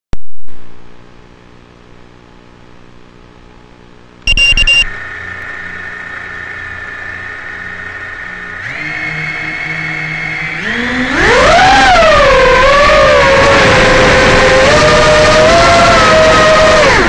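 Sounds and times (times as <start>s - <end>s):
faint low hum: 0.5s - 11.2s
high beeps: 4.3s - 5.0s
drone motors whining: 4.3s - 17.0s.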